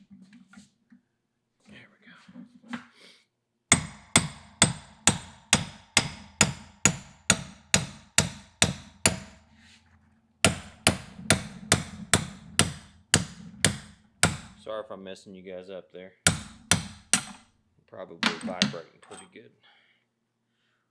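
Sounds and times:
hammer striking metal: 3.7 - 9.4, 10.5 - 14.6, 16.3 - 17.4.

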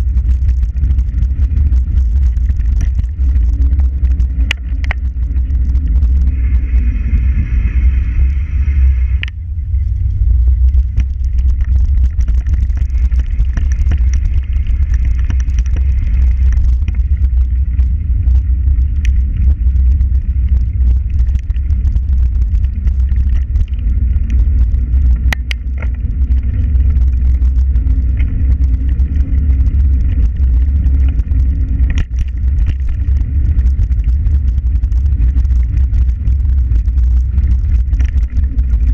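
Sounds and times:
high steady whining tone: 0.0 - 38.9
wind buffeting microphone: 0.0 - 38.9
clicks and rattles from ride: 10.6 - 19.5, 20.4 - 38.9.

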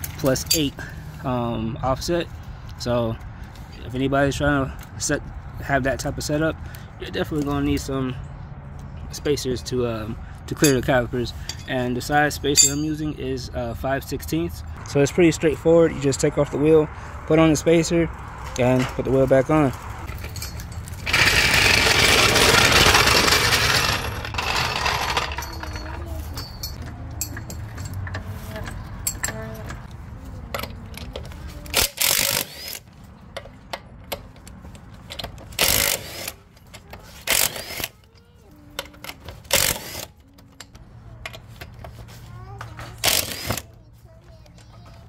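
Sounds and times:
metallic clinks of lug nuts and tools: 0.0 - 1.0, 10.5 - 13.2, 20.0 - 21.2, 23.3 - 42.0
power tool running: 21.0 - 25.5.

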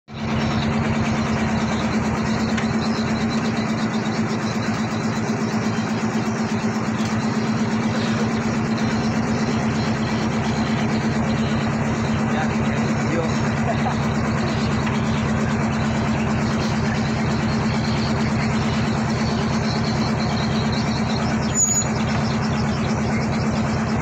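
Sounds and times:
boat engine idling: 0.1 - 24.0.

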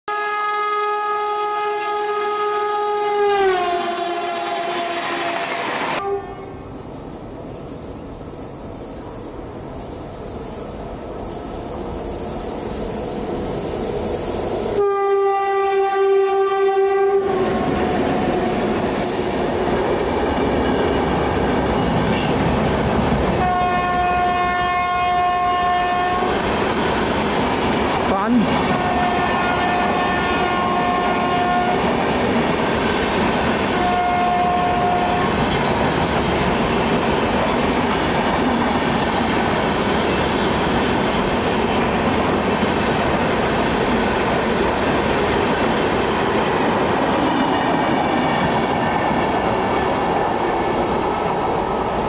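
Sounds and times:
train horn blasts: 0.1 - 6.6, 14.8 - 18.6, 23.4 - 26.3, 28.7 - 31.8, 33.6 - 35.4
train clickety-clack: 3.8 - 6.0, 17.3 - 23.8, 25.6 - 52.0.

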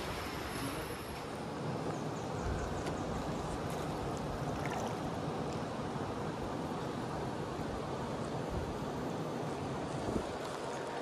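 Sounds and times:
river rushing over stones: 0.0 - 2.4, 3.0 - 11.0
wind on microphone: 9.9 - 10.8.

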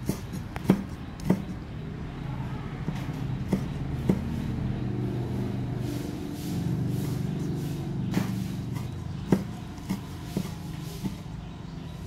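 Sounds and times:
cleaver chopping on wooden block: 0.0 - 1.6, 2.9 - 4.4, 9.2 - 11.3
engine hum: 0.0 - 12.0.

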